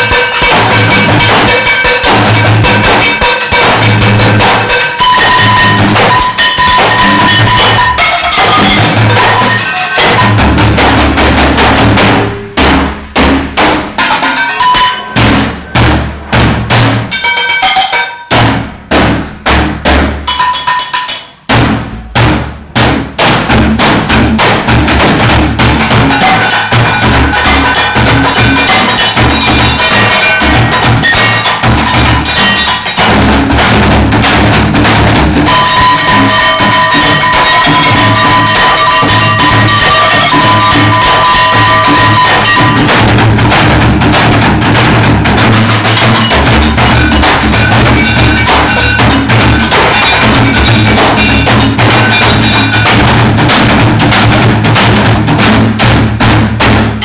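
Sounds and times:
metal pots and pans struck: 0:00.0 - 0:57.0
plastic barrel drums beaten: 0:00.0 - 0:57.0.

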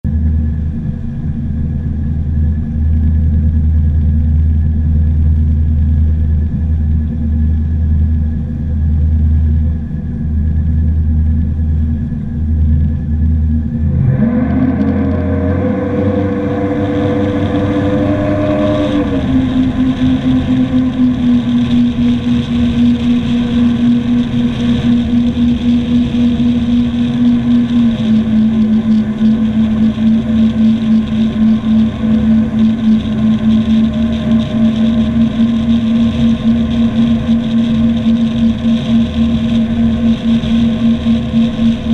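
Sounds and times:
boat engines rumbling: 0:00.1 - 0:41.9
water rushing along hull: 0:13.8 - 0:41.9.

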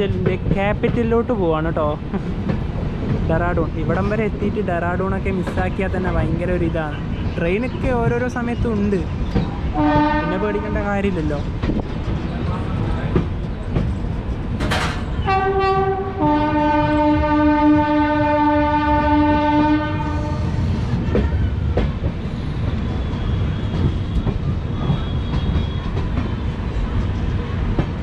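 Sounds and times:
train wheels clacking on rails: 0:02.2 - 0:18.2, 0:20.4 - 0:28.0
locomotive horn: 0:09.7 - 0:10.7, 0:15.2 - 0:21.3.

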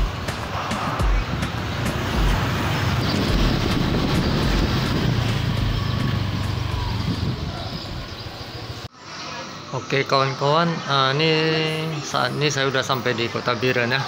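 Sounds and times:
road and wind noise: 0:00.0 - 0:09.7
motorcycle engine running: 0:01.0 - 0:08.8.

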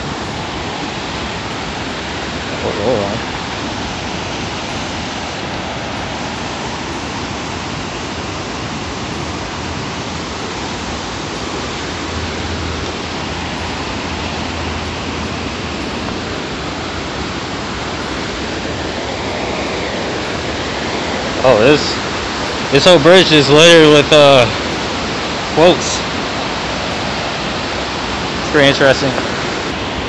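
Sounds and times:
river rapids rushing: 0:00.0 - 0:30.0.

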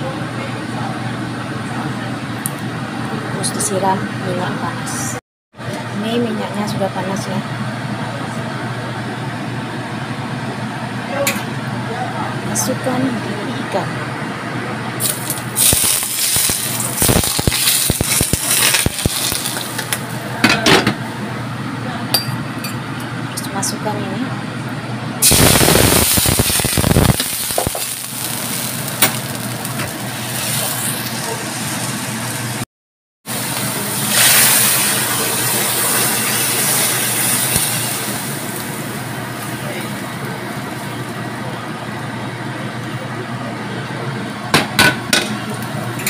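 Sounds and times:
hot oil sizzling and crackling: 0:15.0 - 0:20.2, 0:25.2 - 0:32.6, 0:33.3 - 0:41.2.

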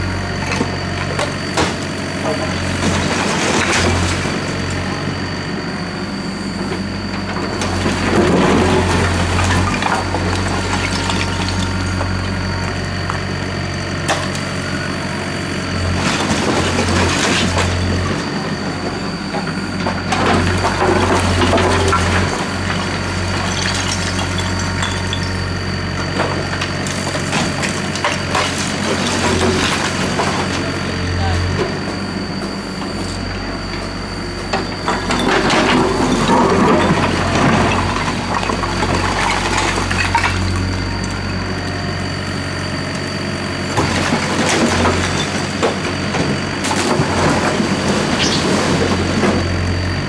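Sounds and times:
excavator diesel engine running: 0:00.0 - 0:50.0
rubble clattering into truck bed: 0:00.5 - 0:04.5, 0:16.0 - 0:25.4, 0:26.0 - 0:30.8, 0:34.5 - 0:40.7, 0:43.7 - 0:49.7.

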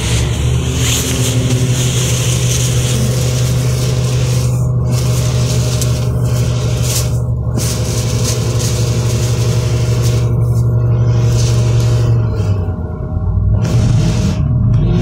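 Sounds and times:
bus engine hum: 0:00.0 - 0:15.0.

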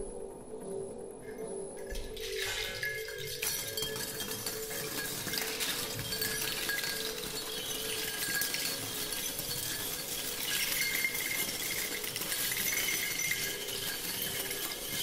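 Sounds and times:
faint steady ringing tones: 0:00.0 - 0:15.0
metal objects clinking on spinning table: 0:01.9 - 0:15.0.

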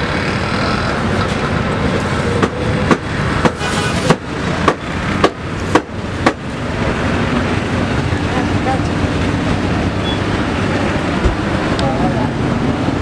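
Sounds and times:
street noise: 0:00.0 - 0:13.0.

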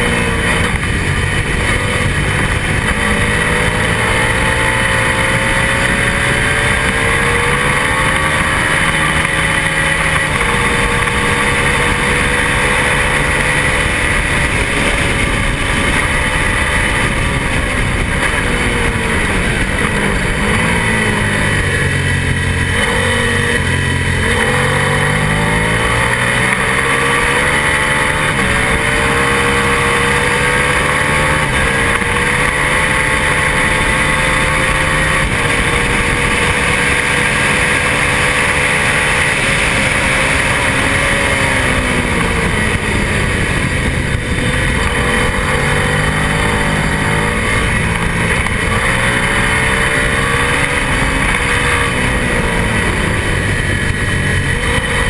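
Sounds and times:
motorcycle engine revving: 0:00.0 - 0:55.0
wind rush: 0:00.0 - 0:55.0.

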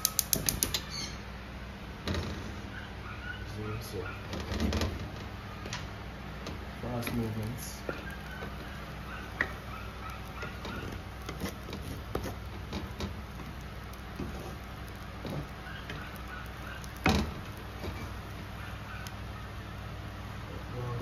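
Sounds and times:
steady low hum: 0:00.0 - 0:21.0
spatula stirring thick sauce: 0:07.8 - 0:19.3.

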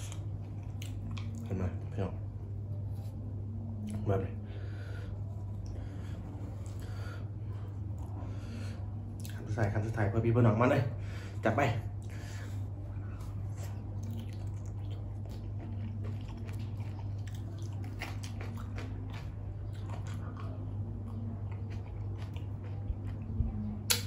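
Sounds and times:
person chewing wetly: 0:00.0 - 0:01.5, 0:09.1 - 0:09.4, 0:12.0 - 0:23.3
low steady hum: 0:00.0 - 0:24.0.

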